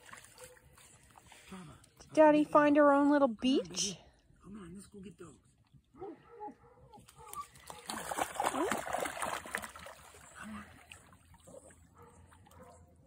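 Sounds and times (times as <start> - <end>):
dog splashing and paddling: 0.0 - 1.4, 7.0 - 13.0.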